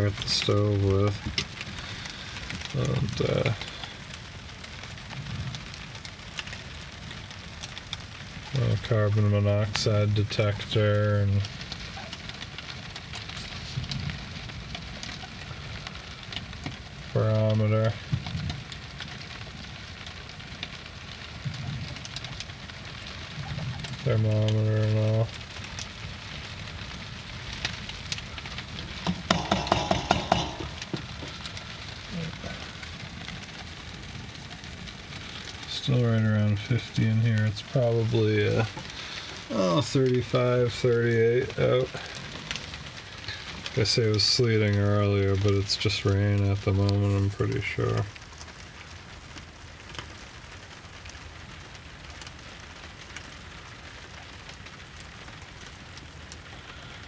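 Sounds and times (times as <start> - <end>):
rain pattering on boat cabin: 0.0 - 57.0
sharp taps: 29.0 - 31.3.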